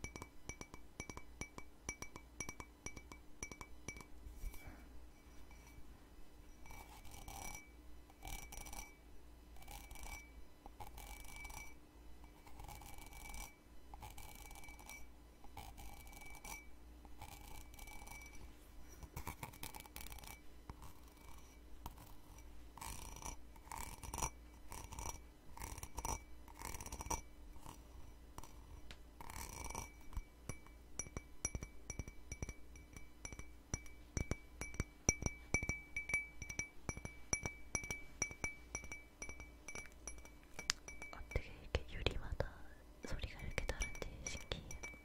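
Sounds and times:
ceramic cup ringing: 0.0 - 5.8, 6.5 - 13.7, 14.4 - 15.1, 15.9 - 16.8, 17.4 - 18.5, 29.3 - 41.4, 43.5 - 45.0
fingernails scratching ceramic cup: 6.5 - 8.9, 9.6 - 10.2, 10.8 - 18.4, 19.0 - 30.2.

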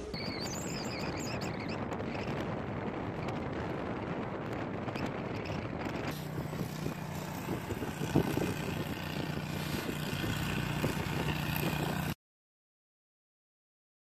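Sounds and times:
wind buffeting microphone: 0.0 - 12.2
vehicle engine running: 5.9 - 12.2.

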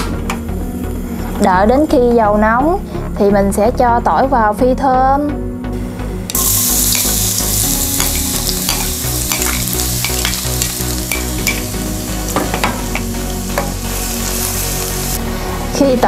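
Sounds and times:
garlic sizzling in oil: 6.3 - 15.2
oil popping and crackling: 6.3 - 15.2.

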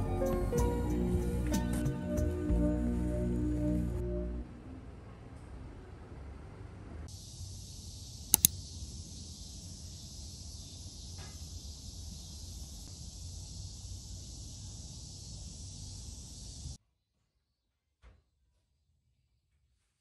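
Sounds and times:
insect chorus: 7.1 - 16.8.

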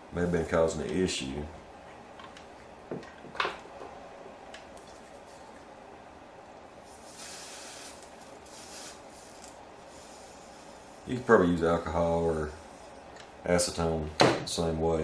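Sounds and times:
aerosol spray hissing: 6.9 - 10.7.

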